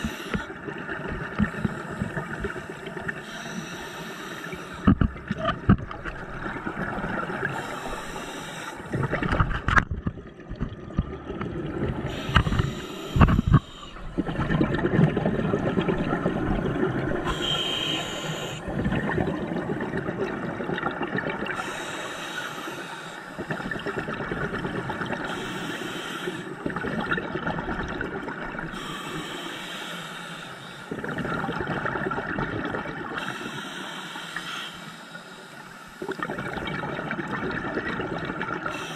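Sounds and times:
regulator hissing inhale: 0.0s - 0.5s, 1.5s - 5.0s, 7.4s - 8.9s, 12.1s - 14.1s, 17.2s - 18.7s, 21.6s - 23.6s, 25.2s - 26.6s, 28.7s - 31.0s, 33.2s - 36.1s, 38.7s - 38.9s
bubbling exhale: 12.0s - 20.4s.

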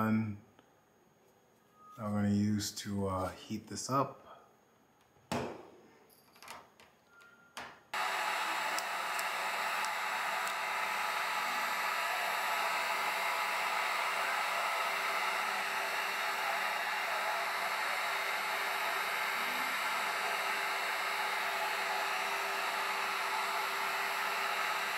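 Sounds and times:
heat gun fan blowing: 8.0s - 24.9s.

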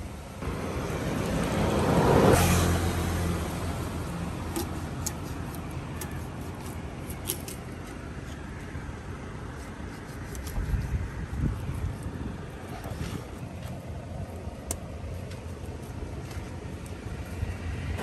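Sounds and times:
vehicle engine passing: 0.4s - 4.9s.

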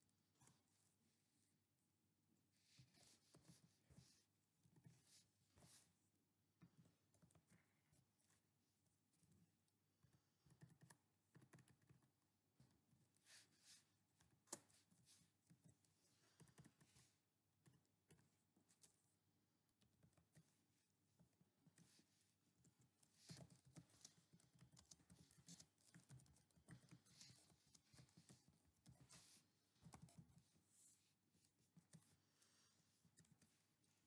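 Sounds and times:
computer keyboard typing: 23.3s - 29.0s.

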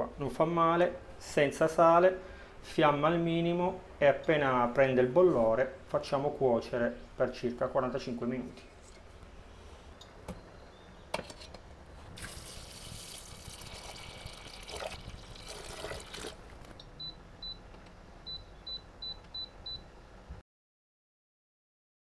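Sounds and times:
water pouring into a pot: 12.2s - 16.4s.

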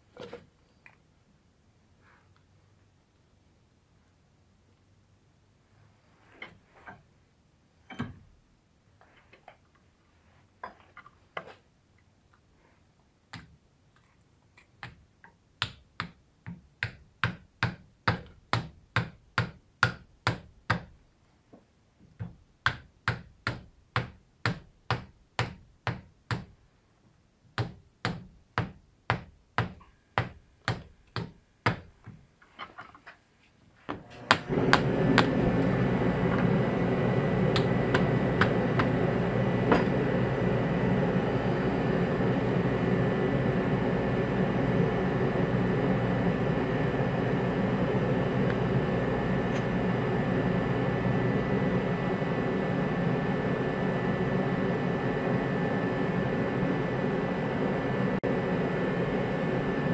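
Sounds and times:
mechanical noise with thin whine: 33.9s - 59.9s.

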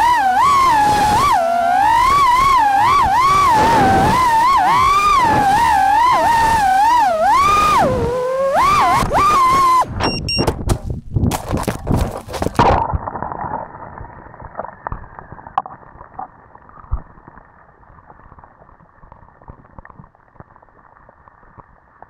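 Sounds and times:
drone motors whining: 0.0s - 10.4s.

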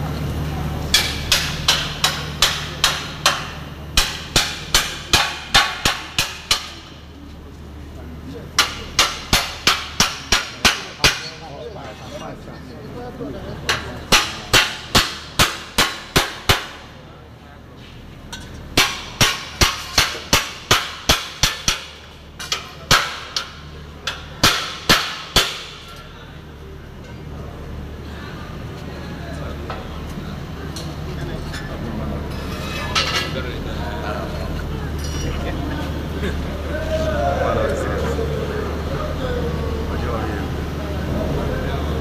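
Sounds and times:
hammer striking steel: 0.9s - 7.0s, 8.6s - 11.5s, 13.7s - 16.9s, 18.3s - 26.1s.

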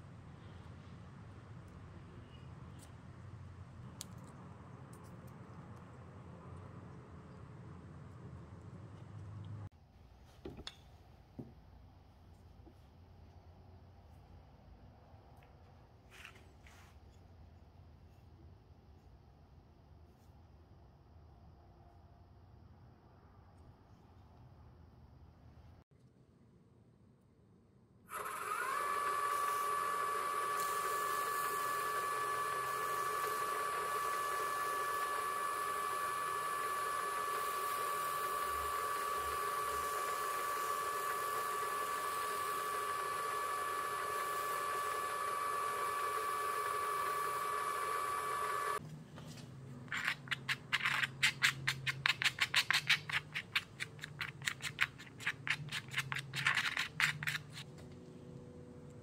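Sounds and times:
drill press motor whining: 28.1s - 48.8s
sanding block on spinning wood: 29.0s - 48.8s.

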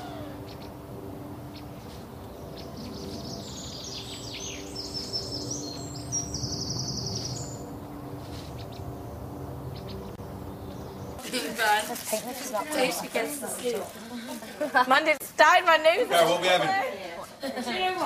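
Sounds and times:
birds chirping and trilling: 0.0s - 11.4s
steady low hum: 0.0s - 11.4s.

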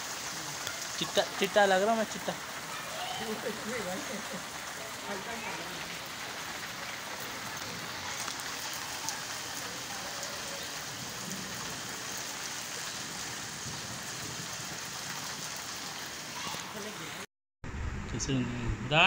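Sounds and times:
rain on concrete roof: 0.0s - 17.3s
single raindrops ticking: 6.6s - 11.7s.

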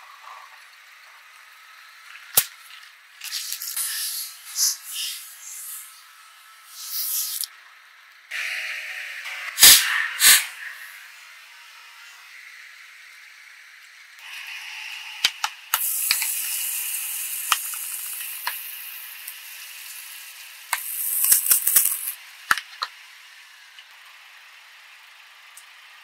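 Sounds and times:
liquid hissing spray: 3.2s - 6.0s, 6.7s - 7.5s, 9.6s - 11.0s, 15.7s - 22.2s.

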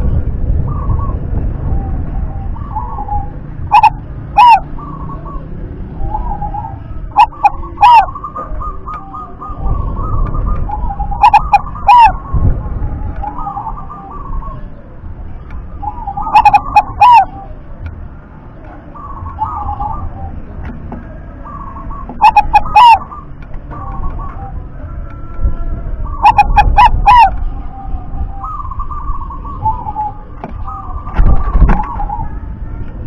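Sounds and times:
dove cooing: 0.0s - 15.0s, 15.6s - 17.8s, 18.6s - 32.4s
faint bird chirping: 0.0s - 32.6s.

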